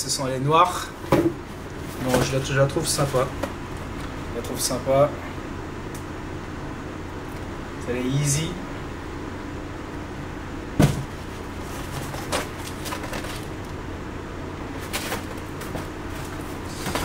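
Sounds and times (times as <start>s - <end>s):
low room hum: 0.0s - 17.0s
rustling of boxes: 1.0s - 4.1s, 10.8s - 13.7s, 14.7s - 17.0s.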